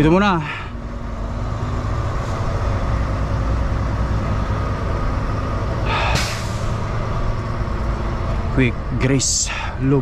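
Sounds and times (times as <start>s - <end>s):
truck diesel engine rumbling: 0.0s - 10.0s
short sharp hiss: 5.9s - 6.7s.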